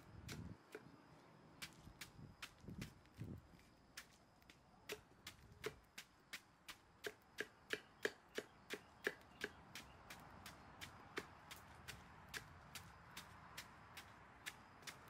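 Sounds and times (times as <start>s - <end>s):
knife chopping on wood: 4.9s - 5.9s, 7.0s - 9.9s.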